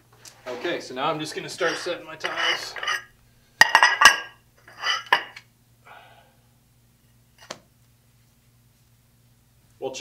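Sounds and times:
tiles clinking on a hard floor: 1.5 - 5.4.

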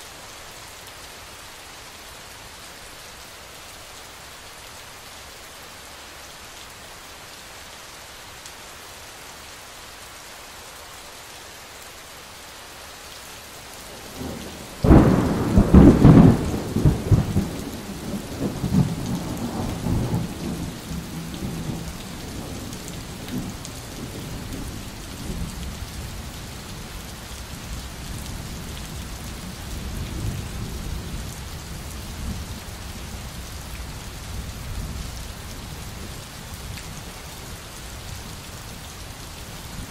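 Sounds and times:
steady rain: 0.0 - 39.9
thunderclap rumbling: 14.1 - 20.6.

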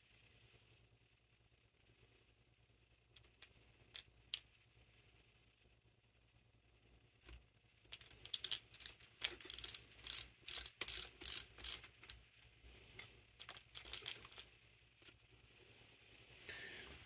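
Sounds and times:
metallic clicking of tools: 7.9 - 12.2.

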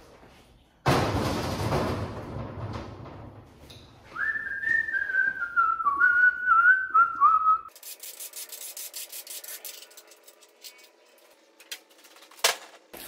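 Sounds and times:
man whistling a tune: 4.1 - 7.7.

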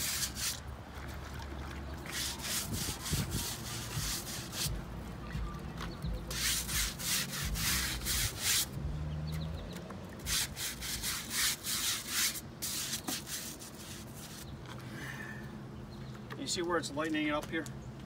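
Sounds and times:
brush scrubbing wood: 0.0 - 0.6, 2.1 - 4.8, 6.3 - 8.8, 10.2 - 14.5.

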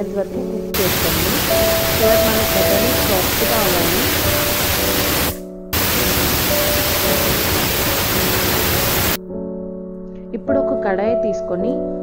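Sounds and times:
pressure cooker steam hissing: 0.8 - 9.2.

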